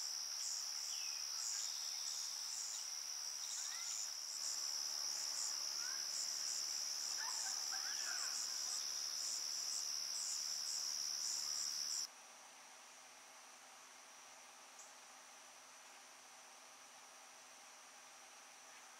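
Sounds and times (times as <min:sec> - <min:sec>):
crickets trilling: 0:00.0 - 0:12.1
sharp cricket chirping: 0:00.0 - 0:12.1.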